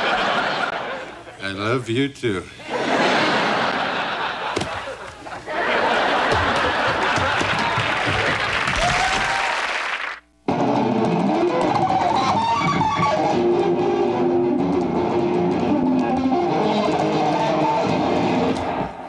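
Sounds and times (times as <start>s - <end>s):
electric guitar rock playing: 10.5s - 19.0s.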